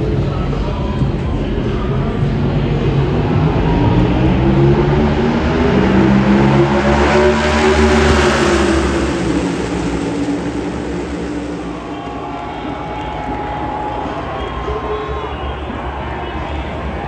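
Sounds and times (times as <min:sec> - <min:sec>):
race cars passing at speed: 0:00.0 - 0:17.0.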